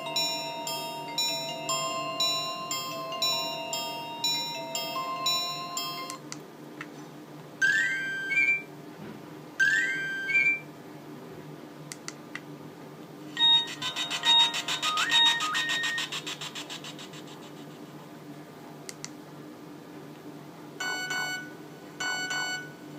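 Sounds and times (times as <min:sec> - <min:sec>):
fast-pulsing multi-note ringtone: 0:00.0 - 0:06.2, 0:09.6 - 0:10.6, 0:13.4 - 0:17.6
rising chirp ringtone: 0:00.0 - 0:06.2, 0:07.6 - 0:08.7, 0:09.6 - 0:10.6, 0:13.4 - 0:17.2
phone beeping alert tone: 0:09.6 - 0:10.6, 0:13.4 - 0:16.5, 0:20.8 - 0:22.8.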